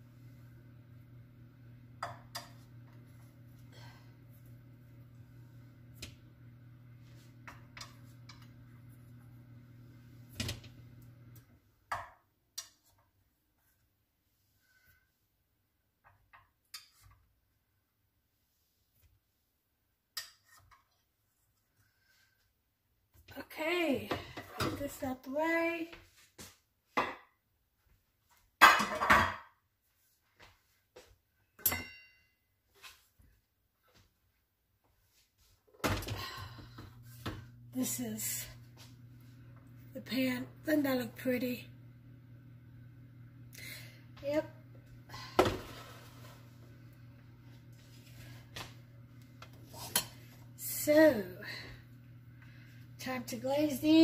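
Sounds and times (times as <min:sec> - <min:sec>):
metal pans knocking and clunking: 0:28.6 - 0:29.4.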